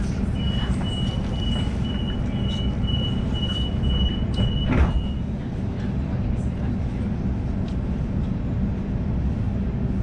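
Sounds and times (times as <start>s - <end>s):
low rumble of standing train: 0.0s - 10.0s
train door warning beeps: 0.3s - 5.3s
train doors shutting thud: 4.1s - 5.2s.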